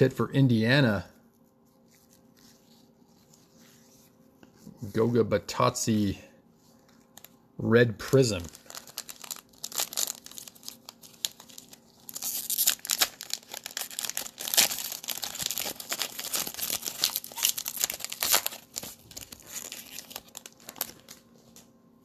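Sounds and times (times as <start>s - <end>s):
foil wrapper crackling: 8.1s - 21.7s.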